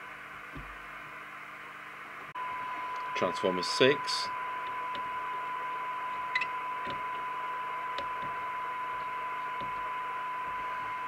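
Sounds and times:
radio receiver hiss: 2.4 - 11.0
steady test tone: 2.4 - 11.0.

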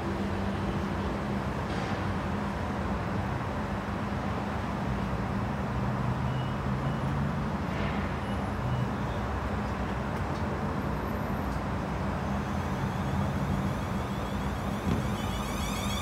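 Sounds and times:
train equipment humming: 11.5 - 16.0.

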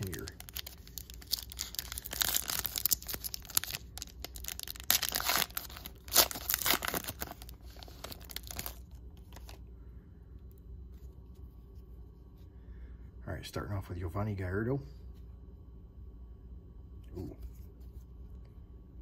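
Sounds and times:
foil wrapper tearing and crinkling: 0.0 - 9.6.

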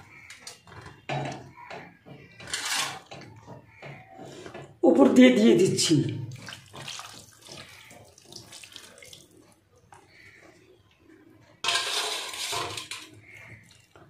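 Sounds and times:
water trickling and splashing: 5.8 - 10.6
rush of pouring water: 6.3 - 9.4.

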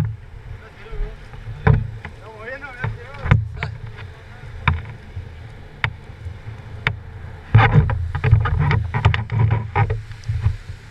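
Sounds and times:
wind on microphone: 0.0 - 10.9
sharp knocks: 1.6 - 4.0, 4.6 - 5.0.

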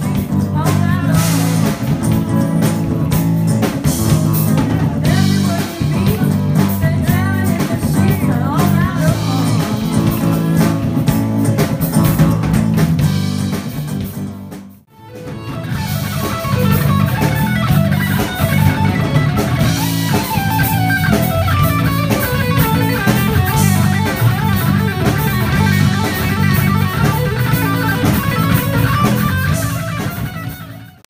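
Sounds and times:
bass guitar: 0.0 - 31.0
drum kit: 0.0 - 31.0
electric guitar rock riff: 0.0 - 31.0.

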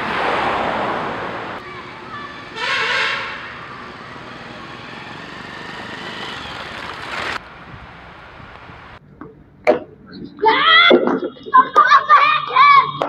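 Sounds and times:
road and wind noise: 0.0 - 10.3.

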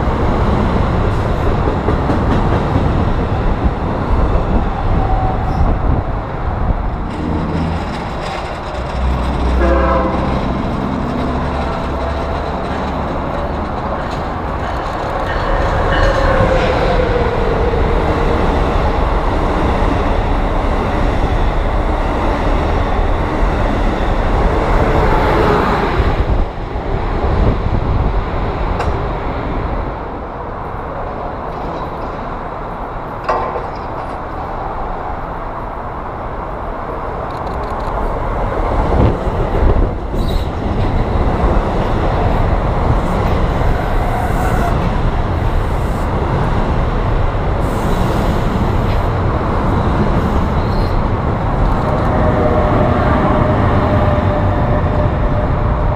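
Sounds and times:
train rushing past: 0.0 - 55.9
train wheel clatter: 0.6 - 3.7, 6.9 - 21.9, 33.1 - 34.6.

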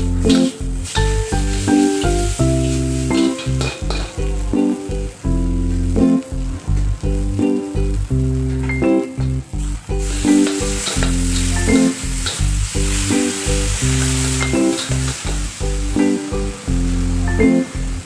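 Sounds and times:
background music with bass line: 0.0 - 18.0
noodles sizzling in a wok: 0.1 - 8.6, 9.5 - 18.0
metal spatula on wok: 0.2 - 4.8, 10.0 - 15.5.

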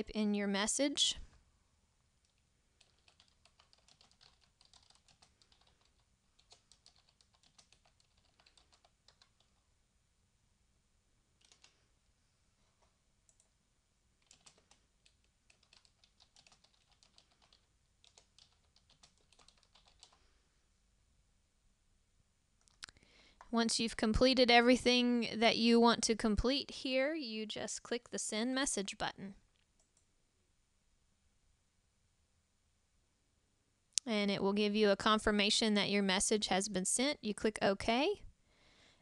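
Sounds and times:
faint keyboard typing: 2.2 - 9.7, 11.4 - 11.9, 12.6 - 20.4, 29.5 - 30.1.

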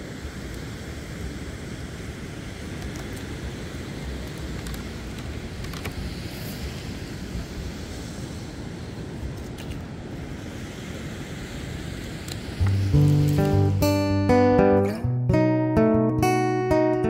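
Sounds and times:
surf rumbling: 0.0 - 17.0.

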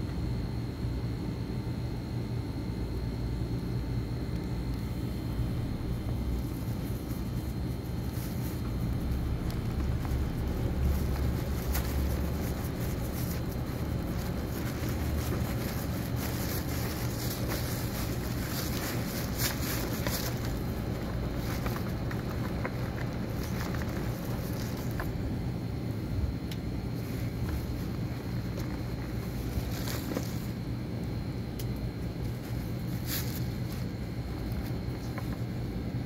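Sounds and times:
low background rumble: 0.0 - 36.0
kitten chewing bones: 4.4 - 25.4.

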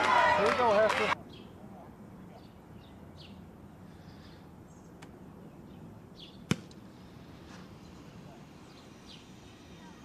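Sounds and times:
outdoor background noise: 0.0 - 10.0
football kick smack: 6.5 - 6.8.

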